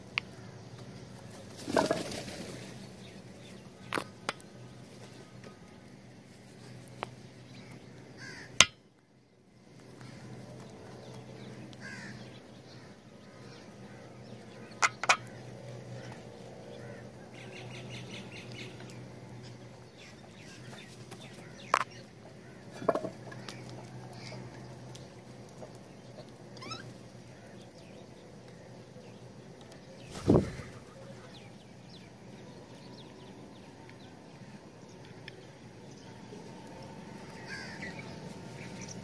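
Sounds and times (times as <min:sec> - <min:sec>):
crows calling: 0:07.5 - 0:08.8, 0:10.0 - 0:10.4, 0:11.5 - 0:17.6, 0:20.0 - 0:24.7, 0:37.2 - 0:39.0.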